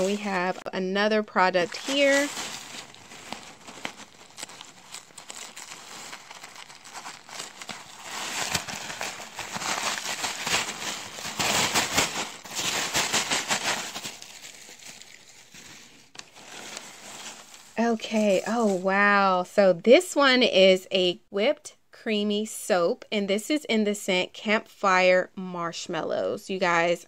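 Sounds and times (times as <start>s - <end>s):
paper rustling and crinkling: 0.0s - 0.7s, 1.4s - 18.9s.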